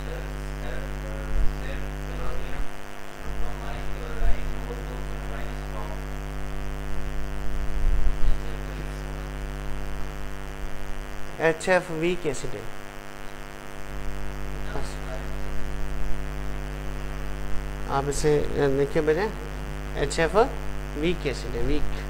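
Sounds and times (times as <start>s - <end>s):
faint voices: 0.0s - 6.4s
electrical mains hum: 0.0s - 22.0s.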